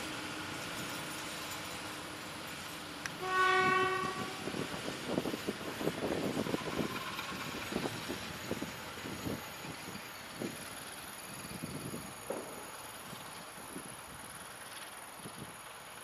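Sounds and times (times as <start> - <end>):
locomotive horn blast: 3.2 - 4.6.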